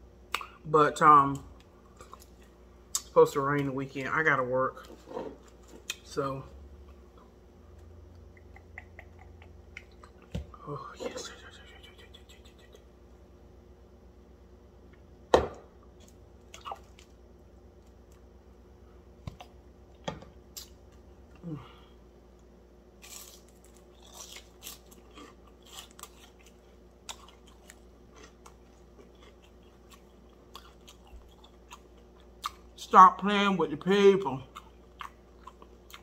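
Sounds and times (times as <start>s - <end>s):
chewing crispy fried fish: 16.0s - 17.2s, 23.0s - 33.0s, 34.2s - 36.0s.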